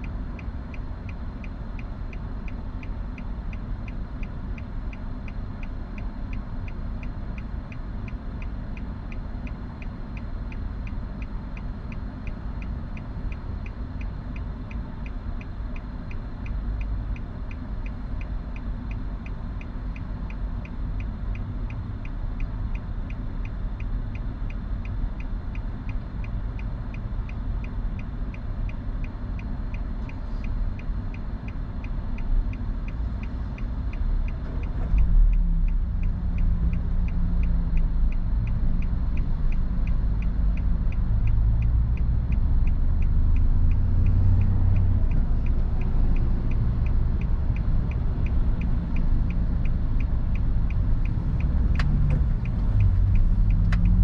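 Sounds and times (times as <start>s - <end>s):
low rumble inside car: 0.0s - 54.0s
regular ticking: 30.5s - 54.0s.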